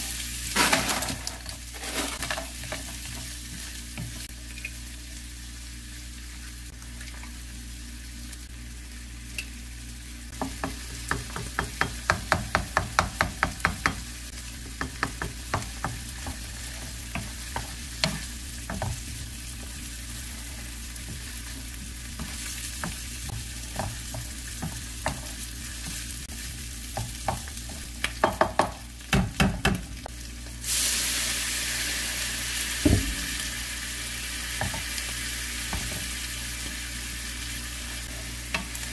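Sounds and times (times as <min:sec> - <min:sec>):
food sizzling in frying pan: 0:00.0 - 0:38.9
spatula tapping and scraping pan: 0:10.3 - 0:19.9, 0:21.0 - 0:26.0, 0:26.9 - 0:29.8
sauce hitting hot pan sizzle: 0:10.3 - 0:30.0, 0:30.6 - 0:37.5.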